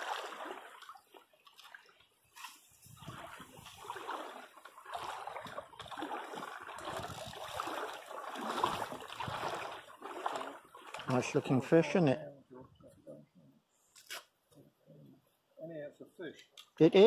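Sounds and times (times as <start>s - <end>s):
river water sloshing and splashing: 0.0s - 12.0s.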